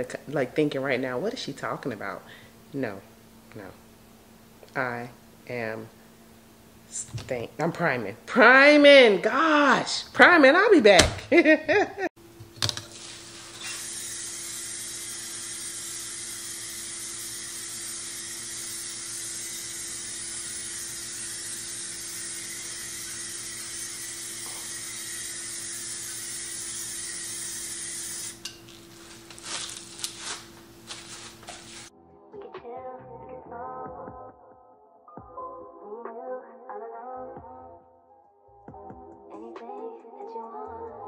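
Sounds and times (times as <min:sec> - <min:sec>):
aerosol spray can hissing: 0:12.8 - 0:28.4, 0:29.2 - 0:31.9.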